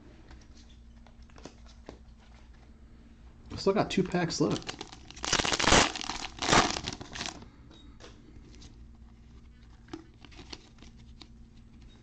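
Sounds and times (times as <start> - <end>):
plastic wrapper crinkling: 4.4 - 7.4.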